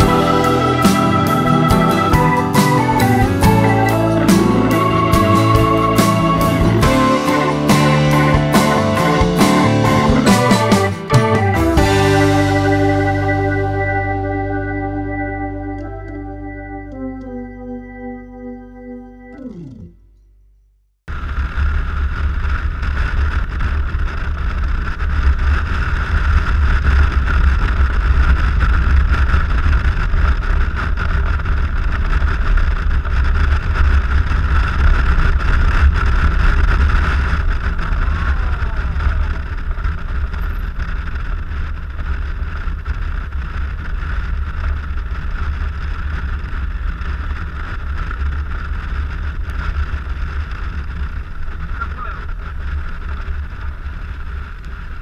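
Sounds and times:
road noise: 0.0s - 20.0s, 21.2s - 55.0s
scooter engine drone: 0.0s - 20.2s, 21.1s - 55.0s
wind rumble on microphone: 21.1s - 55.0s.

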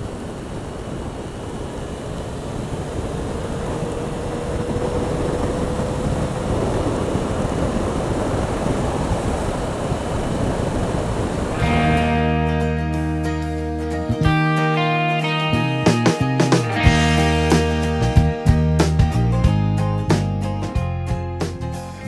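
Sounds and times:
faint steady whine: 0.0s - 13.8s
wind rush on microphone: 0.0s - 14.3s
motorcycle engine: 0.0s - 14.5s.

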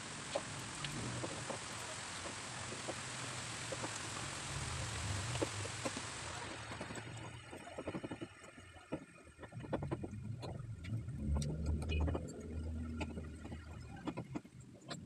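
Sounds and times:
low hum: 3.4s - 7.6s, 9.4s - 15.0s.

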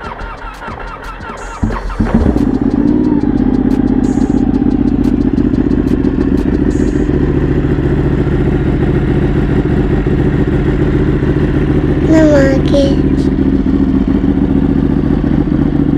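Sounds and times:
motorcycle engine idling: 0.0s - 15.9s.

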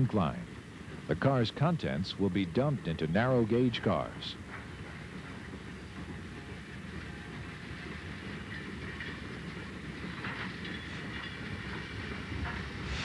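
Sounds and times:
steam locomotive rumbling clatter: 0.0s - 13.0s
steam hiss: 10.9s - 13.0s.

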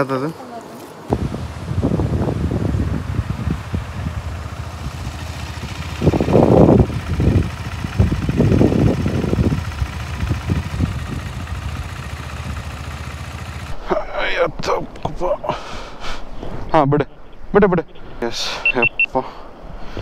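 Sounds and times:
motorcycle engine running: 1.1s - 13.8s.

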